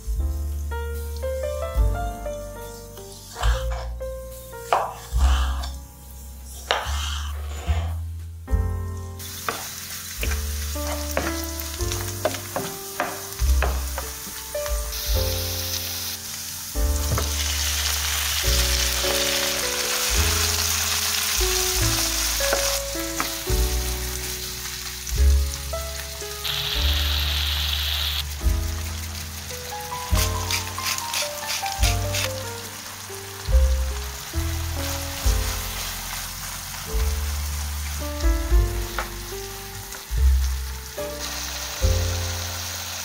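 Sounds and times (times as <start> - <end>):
sausage sizzling in frying pan: 0.0 - 7.9, 8.6 - 43.0
background music with bass line: 0.0 - 42.7
knife chopping on wooden board: 12.2 - 14.1.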